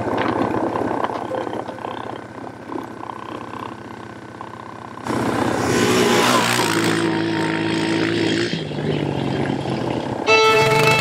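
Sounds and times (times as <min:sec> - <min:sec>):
atv engine revving: 0:00.0 - 0:11.0.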